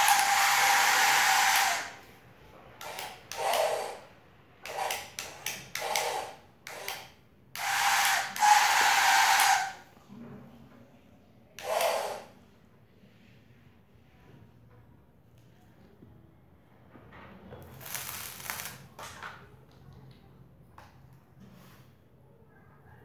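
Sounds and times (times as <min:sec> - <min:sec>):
toy truck motor whirring: 0:00.0 - 0:02.1, 0:02.8 - 0:09.8, 0:11.6 - 0:12.3.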